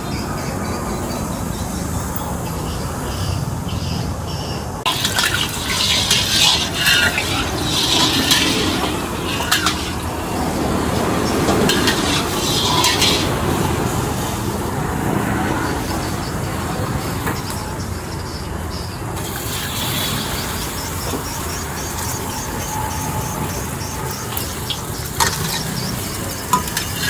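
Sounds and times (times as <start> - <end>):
street noise: 0.0 - 27.0
liquid pouring and splashing: 4.9 - 14.2, 23.4 - 27.0.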